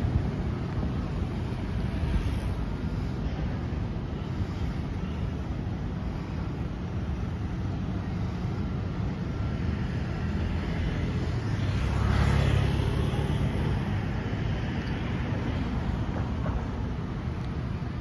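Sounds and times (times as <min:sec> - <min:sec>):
road traffic rumble: 0:00.0 - 0:18.0
car passing: 0:09.8 - 0:16.6.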